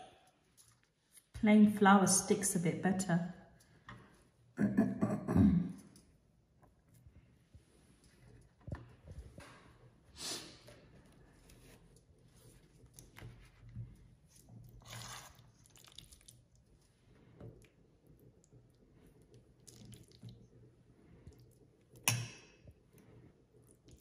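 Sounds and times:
soft rustles and scrapes: 6.6s - 15.6s.

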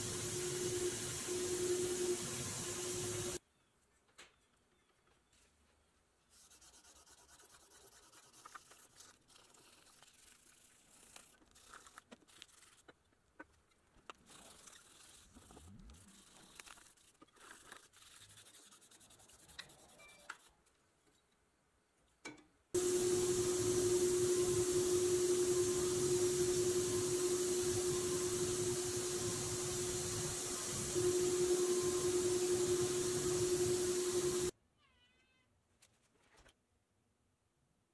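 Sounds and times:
paint spray gun hissing: 0.0s - 3.4s, 22.8s - 34.5s
faint rubbing and light clicks: 6.5s - 21.4s.

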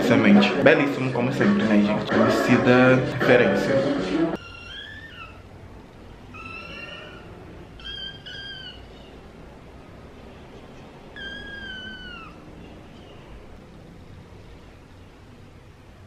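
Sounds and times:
kitten meowing: 4.4s - 5.4s, 6.3s - 9.1s, 11.1s - 12.4s.

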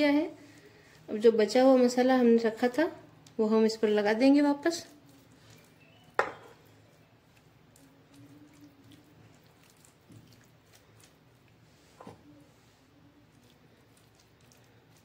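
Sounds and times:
hand squishing marinade paste: 4.4s - 15.0s.

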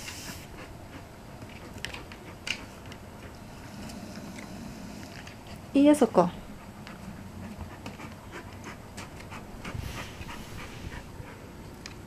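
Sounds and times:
large dog panting: 0.0s - 5.7s, 6.4s - 11.8s.

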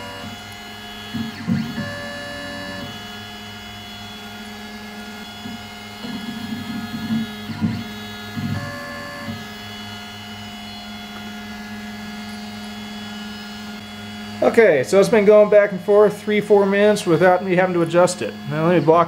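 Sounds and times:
stepper motors whining: 0.0s - 19.0s.

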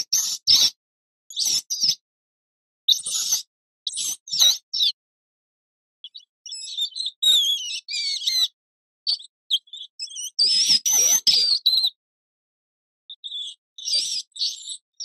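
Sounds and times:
rodent squeaking: 6.0s - 12.0s, 13.1s - 14.8s.

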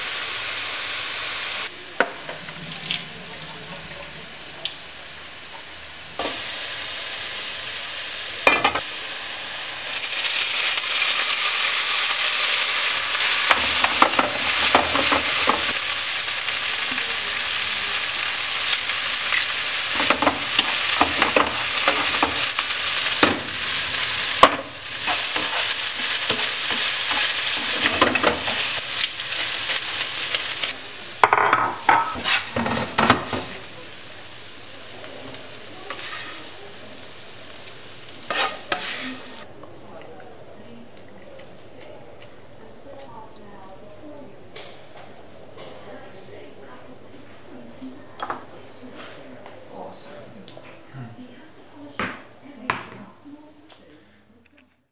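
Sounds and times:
rice sizzling in oil: 0.0s - 39.5s
spatula scraping and knocking pan: 13.4s - 15.8s, 19.9s - 28.7s, 30.4s - 33.6s, 38.3s - 39.2s.

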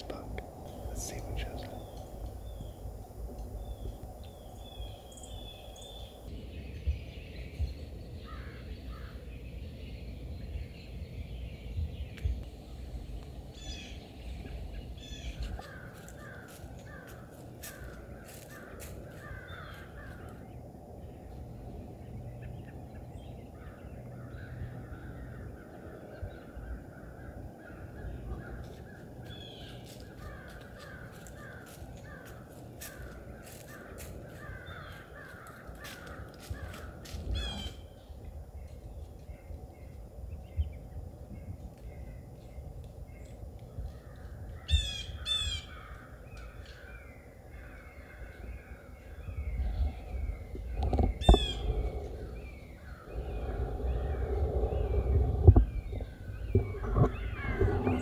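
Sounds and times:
low steady rumble: 0.0s - 30.2s, 36.9s - 58.0s
birds cawing: 8.2s - 9.2s, 15.0s - 20.5s, 26.6s - 37.9s, 44.0s - 48.9s, 50.9s - 54.9s, 56.4s - 58.0s
higher bird calls: 23.5s - 38.1s, 44.0s - 58.0s.

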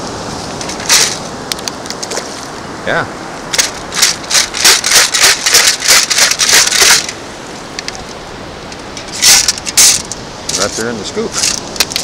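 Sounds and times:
gravel rattling in metal scoop: 3.6s - 7.2s.

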